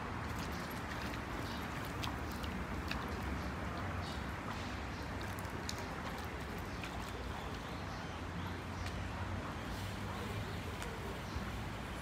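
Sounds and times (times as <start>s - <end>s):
stream water over stones: 0.0s - 12.0s
light splashes: 0.2s - 7.6s.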